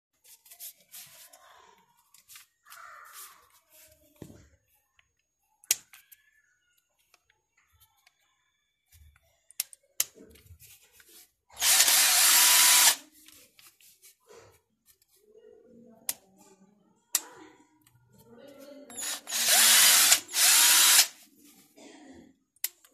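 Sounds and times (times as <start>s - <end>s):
drill motor whirring: 11.6s - 13.0s, 18.9s - 21.2s.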